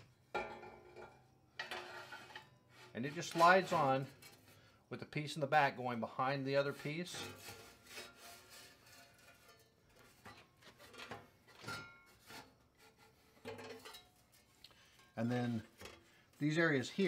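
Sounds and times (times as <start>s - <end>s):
metal pieces scraping: 1.0s - 4.5s, 7.1s - 12.6s.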